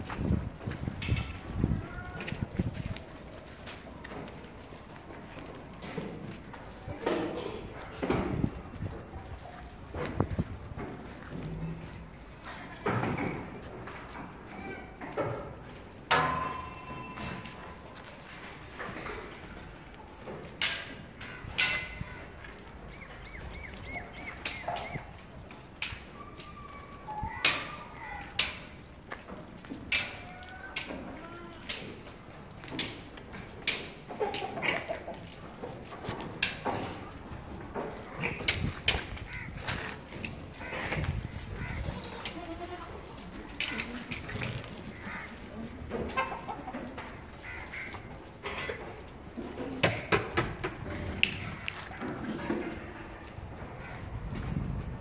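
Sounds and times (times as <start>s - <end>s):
hooves clattering on concrete: 0.0s - 55.0s
goat kids calling: 16.5s - 28.9s, 34.1s - 49.2s
goat bleating: 41.6s - 43.2s.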